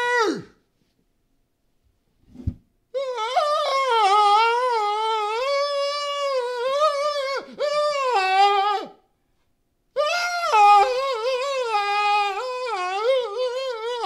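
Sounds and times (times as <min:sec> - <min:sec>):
man screaming high-pitched: 0:00.0 - 0:00.6, 0:03.0 - 0:09.0, 0:10.0 - 0:14.0.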